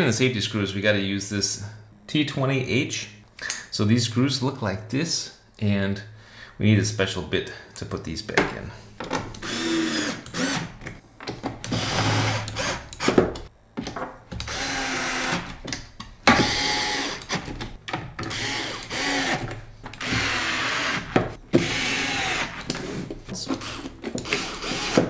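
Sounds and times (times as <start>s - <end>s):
electric screwdriver motor whirring: 9.4s - 10.7s, 11.7s - 13.2s, 14.4s - 15.6s, 16.4s - 17.5s, 18.2s - 22.8s, 23.6s - 25.0s.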